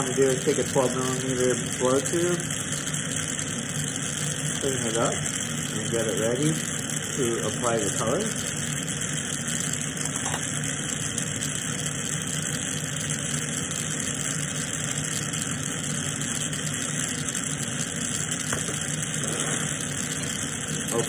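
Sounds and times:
torch hissing rush: 0.0s - 11.1s, 11.7s - 21.0s
low steady hum: 9.6s - 10.7s.

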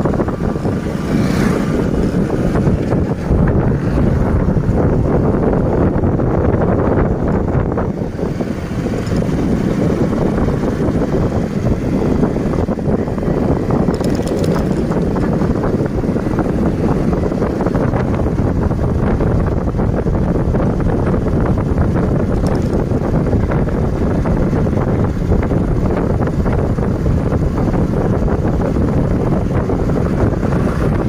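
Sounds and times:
vehicle and road noise: 0.0s - 31.0s
wind buffeting microphone: 0.0s - 31.0s
high rattle: 13.9s - 15.2s.

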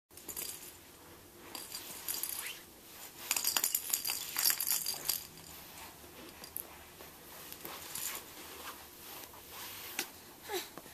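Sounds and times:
rattle toy jingling: 0.2s - 0.8s, 1.5s - 2.6s, 3.2s - 5.6s.

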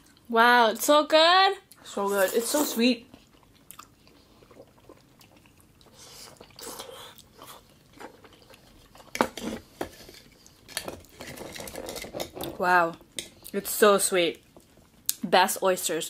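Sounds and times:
person chewing: 1.7s - 11.9s.

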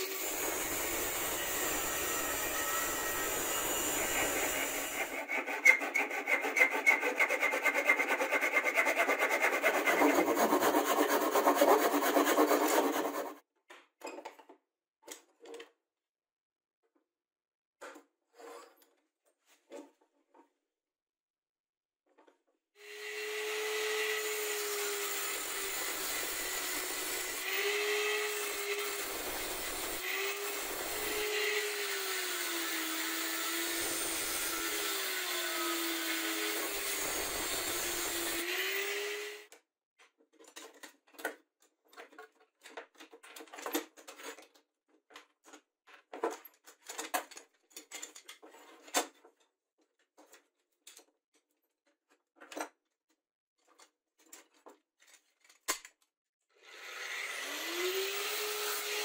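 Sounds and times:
angle grinder cutting steel: 0.0s - 13.4s, 22.8s - 39.5s, 56.7s - 59.0s.

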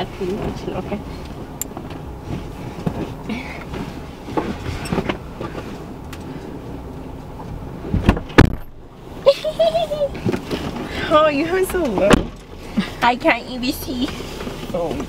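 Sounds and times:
rustling on leather seats: 0.0s - 8.8s, 10.0s - 15.0s
low steady rumble: 0.0s - 15.0s
heavy thumps: 7.9s - 8.9s.

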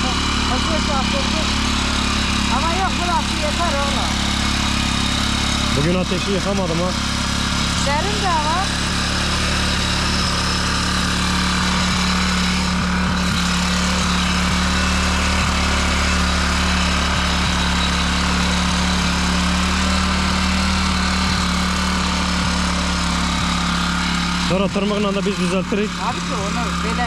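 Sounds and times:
small petrol engine running: 0.0s - 27.0s.

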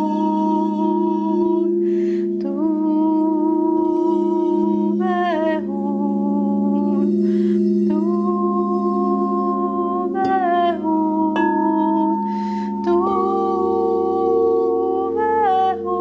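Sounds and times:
singing bowls droning: 0.0s - 16.0s
breaths in: 1.8s - 2.4s, 7.2s - 7.8s, 12.2s - 12.9s.

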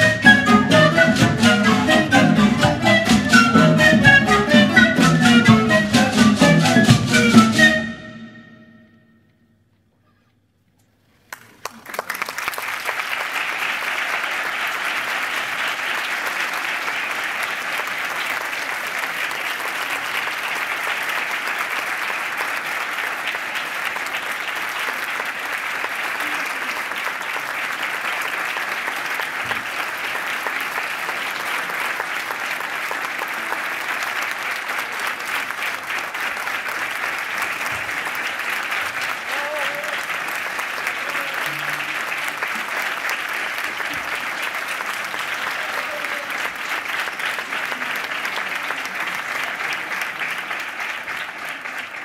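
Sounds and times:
audience applause: 0.0s - 7.8s, 11.2s - 52.0s.

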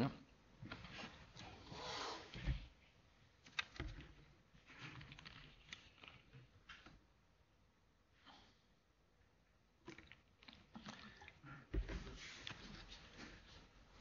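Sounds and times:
soft rustle: 11.8s - 14.0s.

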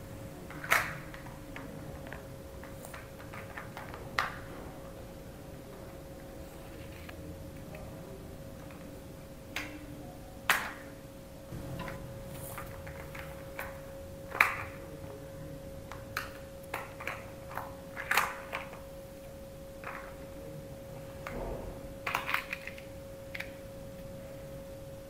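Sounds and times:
faint steady hum: 0.0s - 25.0s
plastic toy cars clacking: 0.5s - 4.5s, 12.6s - 14.9s, 15.9s - 18.8s, 22.0s - 23.6s.

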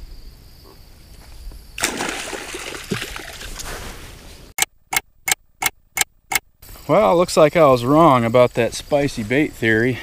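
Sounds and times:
water splashing in shallows: 1.8s - 3.8s.

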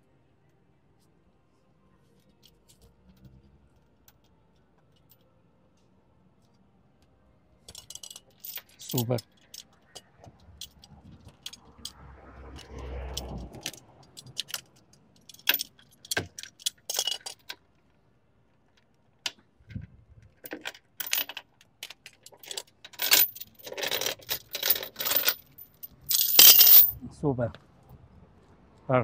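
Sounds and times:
chain clinking and rattling: 7.7s - 17.6s, 19.3s - 27.0s.

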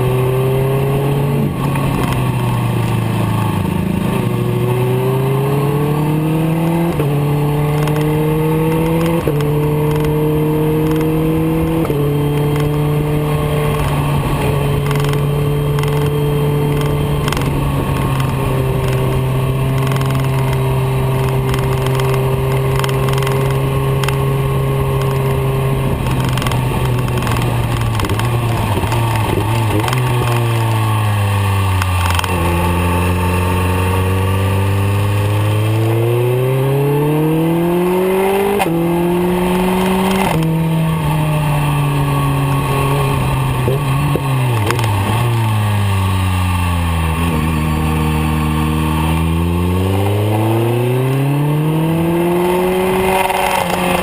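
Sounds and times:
motorcycle engine revving: 0.0s - 54.0s
wind noise: 0.0s - 54.0s.

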